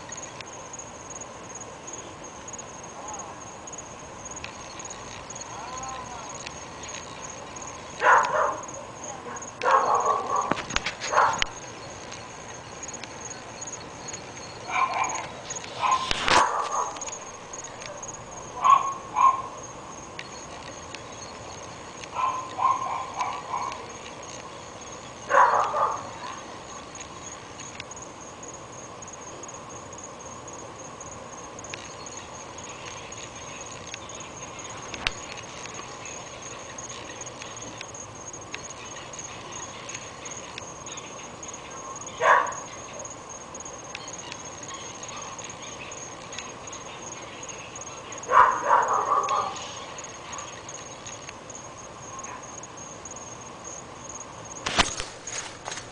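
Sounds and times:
dogs barking: 8.0s - 11.6s, 14.6s - 19.7s, 22.1s - 24.0s, 25.2s - 26.5s, 41.7s - 43.2s, 48.1s - 50.6s.

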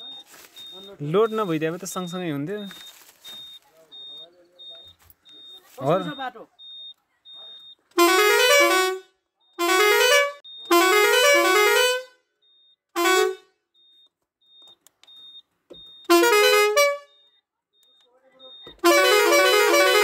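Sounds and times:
air horn playing melodic tunes: 8.0s - 9.0s, 9.6s - 12.1s, 13.0s - 13.4s, 16.1s - 17.1s, 18.8s - 20.0s.

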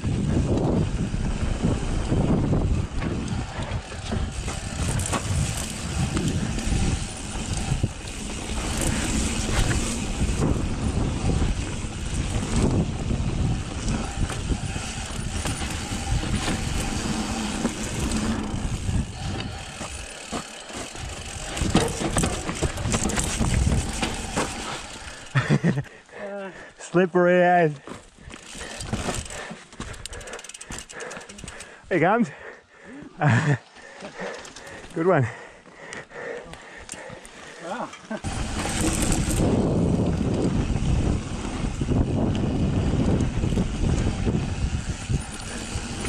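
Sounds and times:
wind rushing on microphone: 0.0s - 20.1s, 20.9s - 25.8s, 38.2s - 46.0s
bike knocking and rattling: 0.0s - 25.8s, 27.9s - 31.7s, 36.9s - 46.0s.

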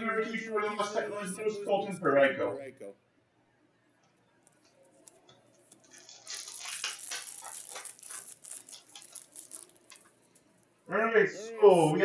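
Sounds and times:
wrapper tearing and crinkling: 4.9s - 10.7s.

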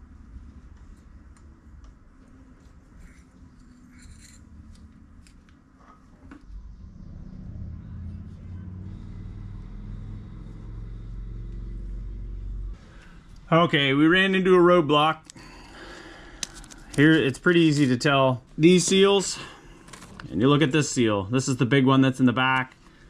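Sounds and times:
steady low hum: 0.0s - 21.3s
metal pick clicking and scraping: 3.0s - 5.6s.

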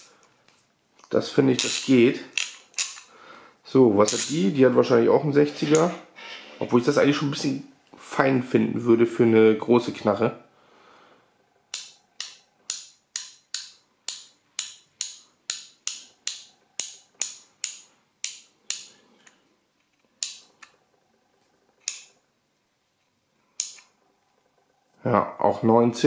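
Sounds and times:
hand ratchet clicking: 11.7s - 18.9s.

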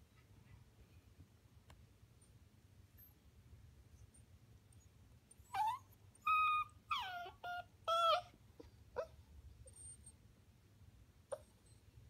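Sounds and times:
dog whining: 5.4s - 10.2s, 11.3s - 11.9s
faint short squeaks: 9.7s - 10.2s.

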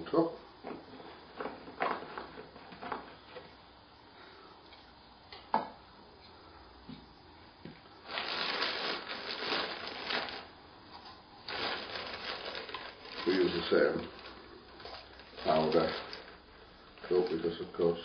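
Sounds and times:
plastic bag crinkling: 8.0s - 10.6s, 11.4s - 17.8s.

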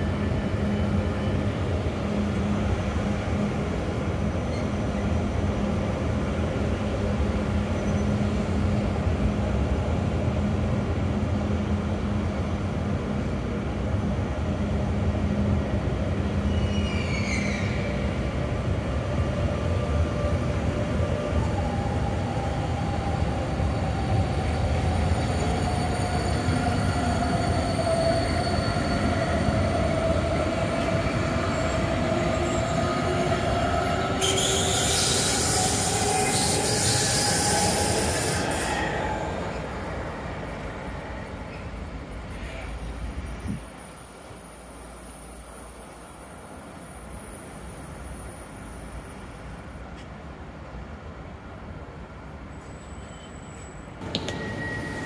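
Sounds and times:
train rumbling over bridge: 0.0s - 55.0s
train wheels whining and squealing: 4.3s - 5.2s, 7.5s - 8.9s, 16.3s - 49.7s, 52.4s - 55.0s.

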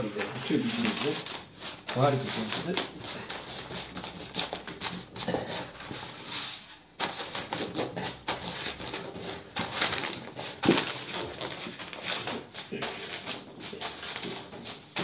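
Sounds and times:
paper crinkling and rustling: 0.0s - 15.0s.

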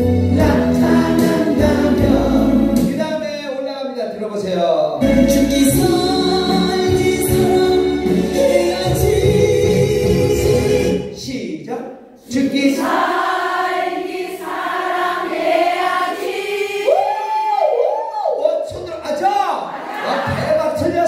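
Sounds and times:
pop backing track with bass beat: 0.0s - 3.4s, 5.0s - 11.2s
women singing in unison: 12.4s - 17.1s.

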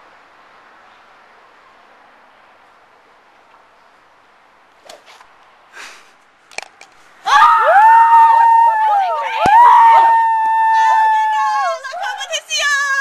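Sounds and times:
people screaming in celebration: 7.3s - 13.0s.

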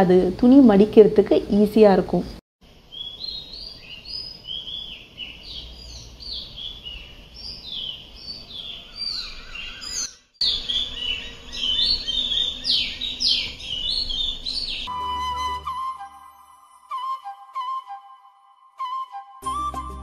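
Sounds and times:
birds chirping: 2.8s - 15.6s.

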